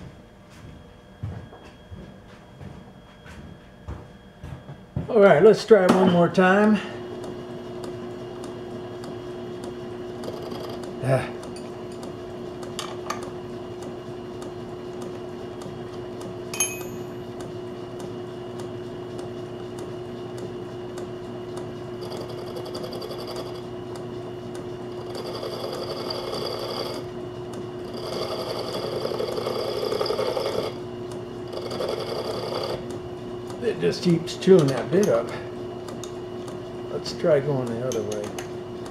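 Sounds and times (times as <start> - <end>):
metal lathe humming: 5.3 - 38.9
lathe tool scraping metal: 22.0 - 23.6, 25.0 - 27.1, 27.9 - 30.8, 31.5 - 32.9.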